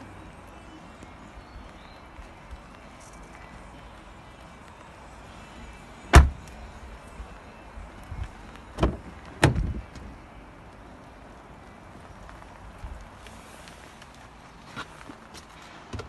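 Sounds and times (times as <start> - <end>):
car door shutting: 6.1 - 6.5, 8.8 - 10.0.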